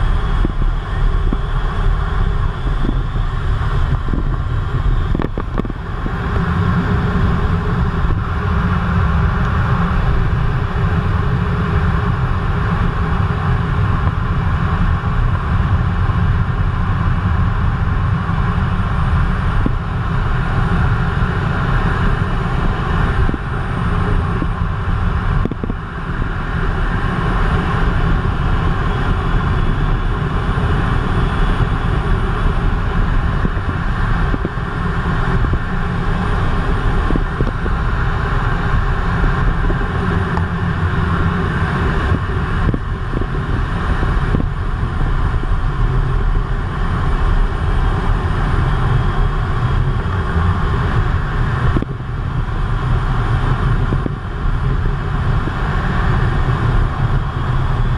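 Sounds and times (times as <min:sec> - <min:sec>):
jet engines and airflow rushing: 0:00.0 - 0:57.9.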